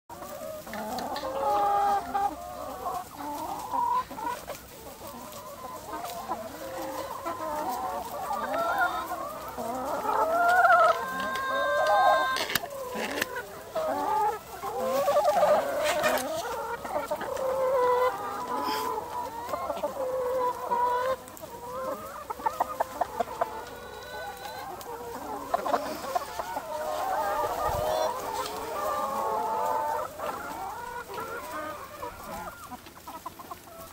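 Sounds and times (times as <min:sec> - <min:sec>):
hens clucking: 0:00.1 - 0:33.9.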